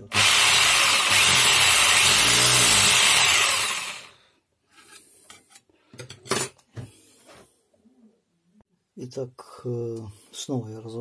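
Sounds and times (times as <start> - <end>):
power tool motor spinning down: 0.0 - 4.1.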